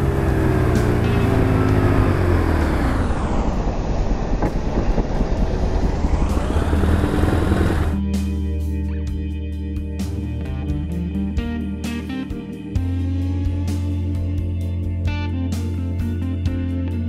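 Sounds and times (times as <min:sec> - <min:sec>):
motorcycle engine idling: 0:04.4 - 0:08.0.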